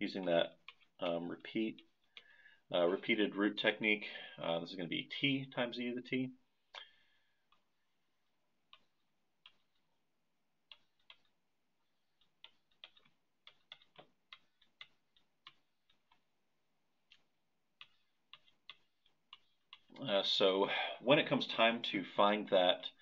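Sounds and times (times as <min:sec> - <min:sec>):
stylus tapping on tablet screen: 0:00.5 - 0:02.5, 0:06.6 - 0:20.0.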